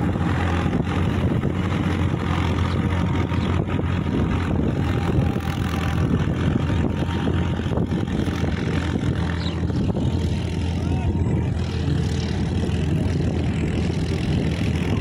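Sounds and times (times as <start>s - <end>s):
rotary tiller churning soil: 0.0s - 10.8s
tractor diesel engine running: 0.0s - 15.0s.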